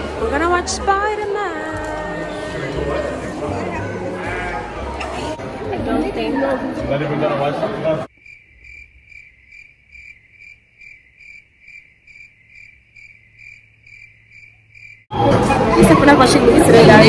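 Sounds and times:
crickets chirping: 8.1s - 15.1s.

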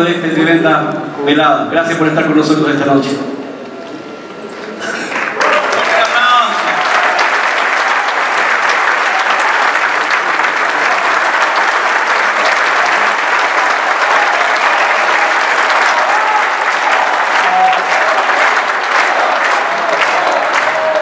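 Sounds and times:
audience applauding: 4.8s - 21.0s.

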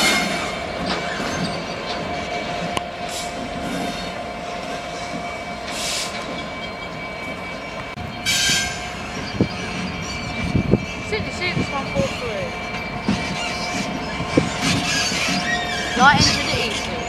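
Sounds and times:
diesel locomotive engine: 0.0s - 17.0s
wheel squeal: 0.0s - 17.0s.

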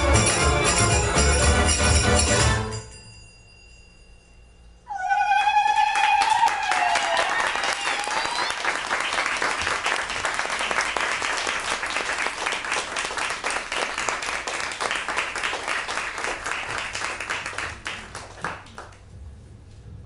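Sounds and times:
audience applauding: 5.3s - 19.1s.

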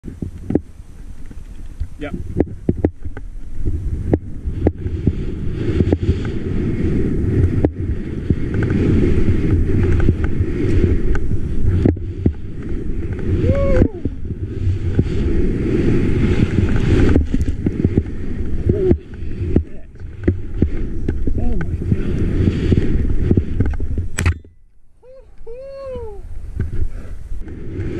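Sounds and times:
wind buffeting microphone: 0.0s - 27.9s
skis hissing through snow: 4.5s - 13.5s, 14.4s - 19.6s, 21.7s - 23.5s.

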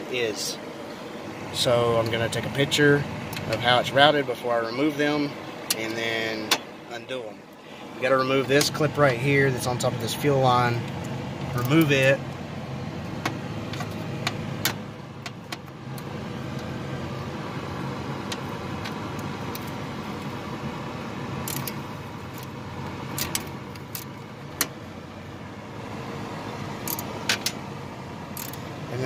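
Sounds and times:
steady background hum: 0.0s - 29.0s
small clicks and rattles: 23.1s - 24.7s, 28.4s - 28.7s.

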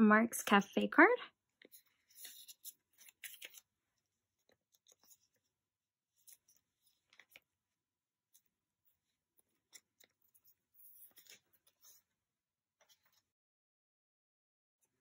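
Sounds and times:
binder pages rustling: 1.6s - 7.6s, 8.3s - 12.1s
plastic sleeves crinkling and clicking: 1.7s - 3.8s, 6.2s - 7.5s.

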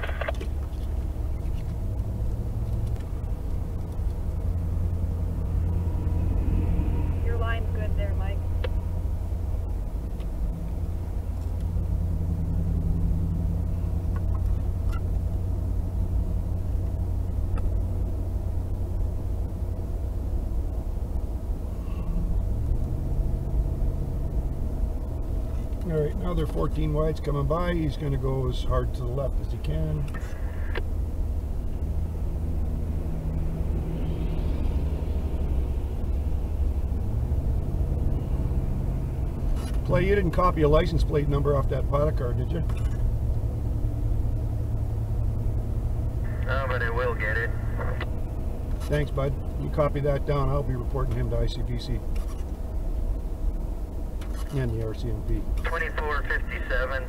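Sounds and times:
vehicle engine and tyre noise: 0.0s - 57.0s
passing vehicle hiss: 5.5s - 8.0s.

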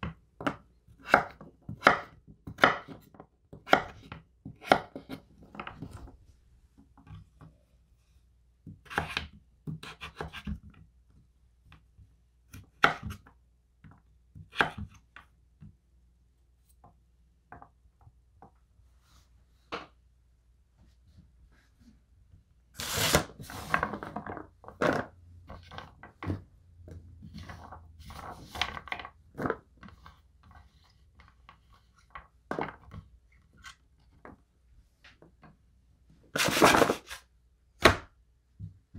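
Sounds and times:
squash scraped across cutting board: 22.8s - 23.8s, 36.4s - 37.2s.

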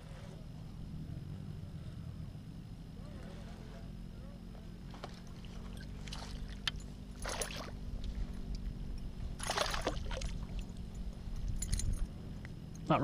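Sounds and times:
water splashing around kayak: 4.9s - 8.3s, 9.4s - 10.8s.

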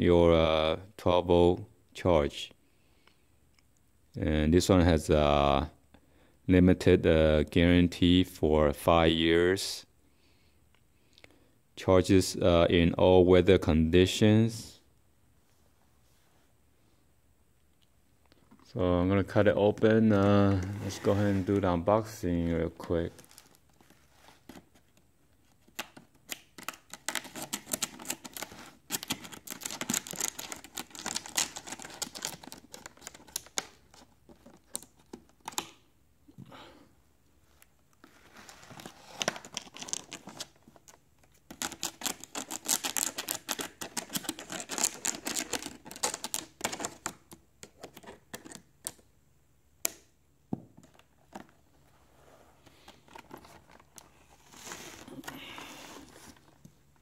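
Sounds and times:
shrink-wrap plastic crinkling and tearing: 26.6s - 33.8s, 41.5s - 47.3s.

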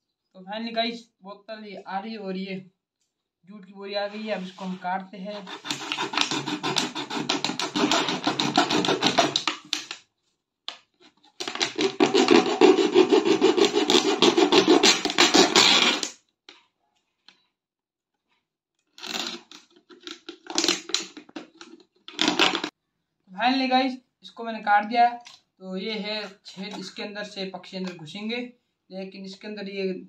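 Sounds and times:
knife sawing through plastic bottle: 5.3s - 9.9s, 11.4s - 16.1s, 19.0s - 22.7s.

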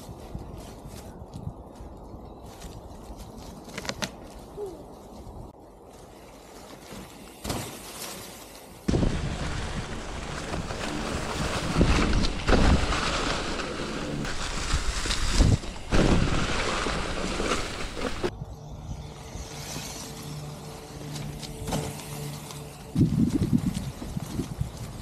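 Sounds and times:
bike tyres rushing through leaves: 2.4s - 18.3s, 19.0s - 25.0s
bike thumps over bumps: 6.9s - 18.3s.

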